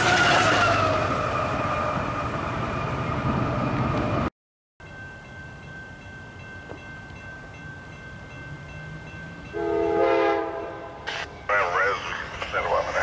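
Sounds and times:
train air horn chord: 9.5 - 11.4.

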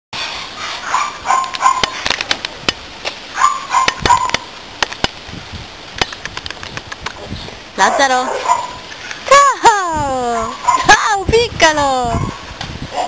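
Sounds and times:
sharp clicks: 3.8 - 5.2, 6.0 - 7.2.

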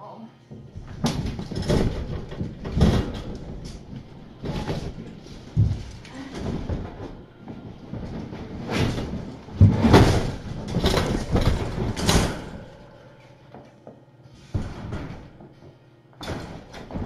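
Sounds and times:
scraping and rustling: 0.7 - 13.4.

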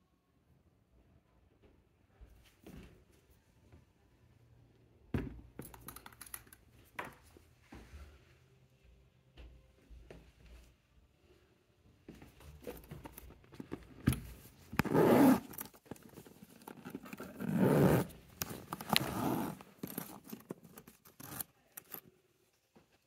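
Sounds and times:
clicks and rustles of bag handling: 5.6 - 7.3, 12.4 - 22.2
handbag zip pulled: 14.8 - 22.0.

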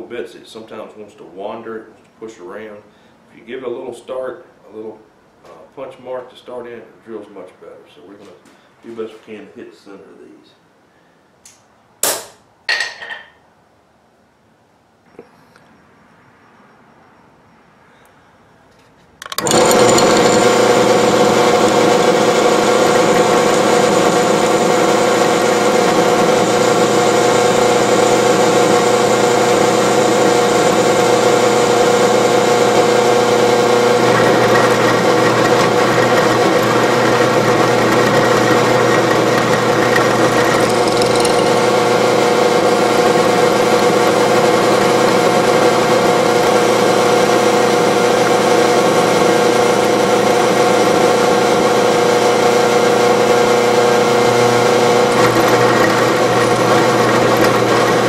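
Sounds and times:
bit drilling through steel: 19.2 - 58.0
drill press motor running: 19.2 - 58.0.

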